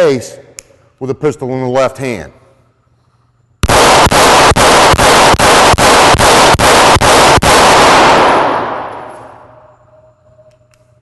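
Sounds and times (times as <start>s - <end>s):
pistol shots echoing indoors: 3.6s - 10.9s.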